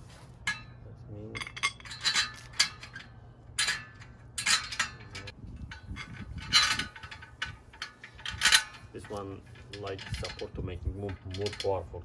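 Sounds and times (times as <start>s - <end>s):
metal parts clinking: 0.4s - 12.0s.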